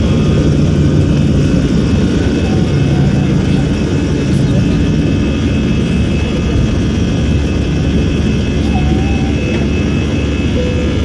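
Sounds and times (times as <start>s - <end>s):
engine whining tones: 0.0s - 11.0s
jet engine cabin rumble: 0.0s - 11.0s.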